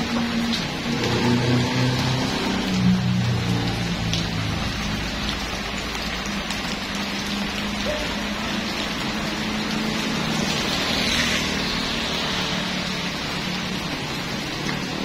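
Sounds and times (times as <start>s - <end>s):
heavy rain on road: 0.0s - 15.0s
motor scooter passing: 7.2s - 15.0s.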